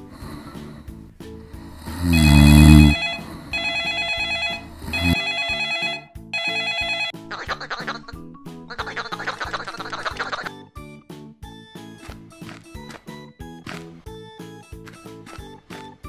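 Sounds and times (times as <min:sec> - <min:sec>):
cartoon snore: 0:00.0 - 0:03.6, 0:04.5 - 0:05.3
mobile phone ringtone: 0:01.8 - 0:07.3
high chattering quacking voice: 0:07.2 - 0:10.6.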